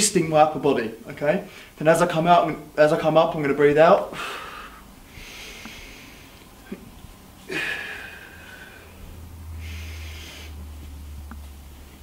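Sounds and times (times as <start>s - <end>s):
man breathing hard: 4.1s - 6.5s, 7.4s - 10.9s
sharp forceful exhale: 7.5s - 10.6s.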